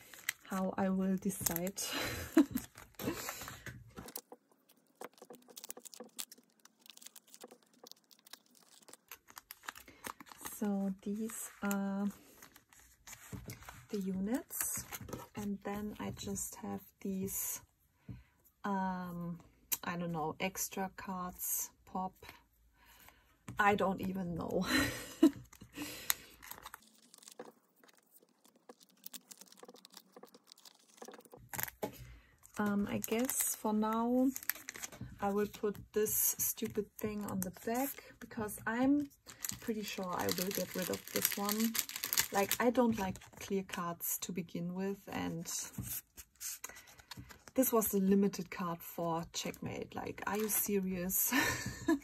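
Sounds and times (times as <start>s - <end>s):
plastic rustling: 0.0s - 15.4s, 24.6s - 43.5s.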